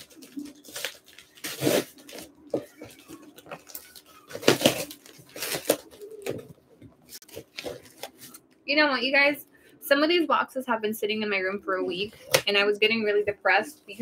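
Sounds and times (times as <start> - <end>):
cardboard and tape rustling: 0.0 - 8.5
scissors cutting packing tape: 0.1 - 2.3, 3.6 - 6.3.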